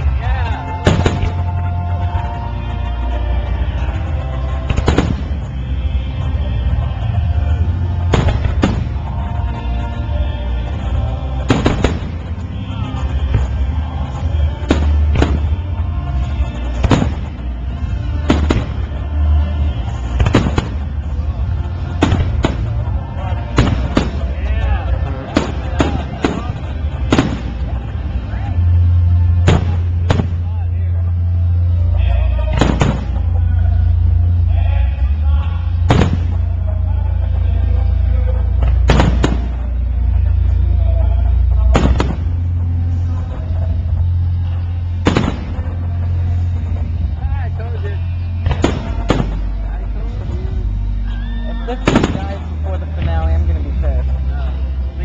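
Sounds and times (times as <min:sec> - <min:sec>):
music playing: 0:00.0 - 0:55.0
steady low rumble: 0:00.0 - 0:55.0
fireworks bursting with booms: 0:00.8 - 0:01.6, 0:04.6 - 0:05.5, 0:08.0 - 0:09.2, 0:11.5 - 0:12.5, 0:14.6 - 0:15.6, 0:16.6 - 0:19.2, 0:19.9 - 0:21.2, 0:21.8 - 0:24.6, 0:25.2 - 0:27.8, 0:29.4 - 0:30.4, 0:32.6 - 0:33.3, 0:35.9 - 0:36.5, 0:38.7 - 0:39.7, 0:41.7 - 0:42.5, 0:45.0 - 0:46.2, 0:48.4 - 0:49.6, 0:51.8 - 0:53.2.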